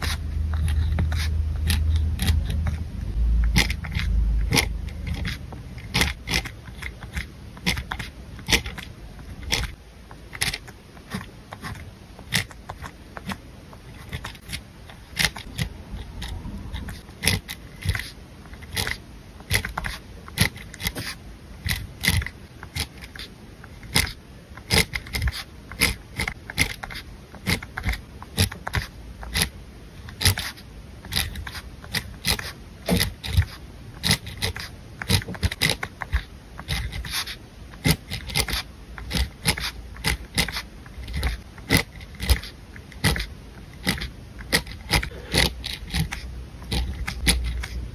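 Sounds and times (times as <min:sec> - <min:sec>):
pen scratching on paper: 0:00.0 - 0:47.9.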